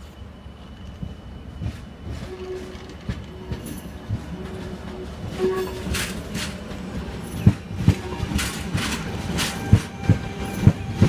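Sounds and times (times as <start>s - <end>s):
train wheels rumbling over rails: 0.0s - 11.0s.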